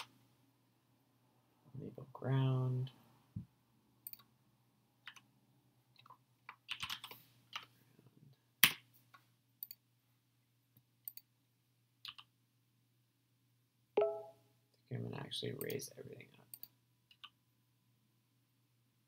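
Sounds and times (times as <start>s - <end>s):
computer keyboard typing: 6.0s - 7.7s, 12.0s - 12.3s.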